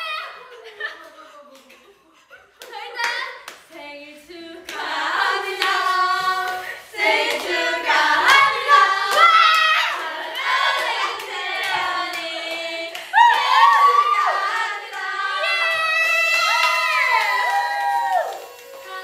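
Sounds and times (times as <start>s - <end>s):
voices singing together: 2.2s - 19.0s
hand claps: 2.6s - 3.8s.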